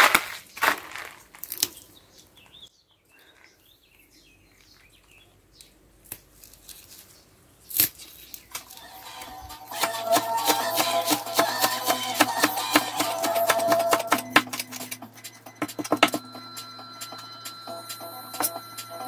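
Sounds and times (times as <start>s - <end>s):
stems tearing and leaves rustling: 0.0s - 1.9s, 6.0s - 9.3s.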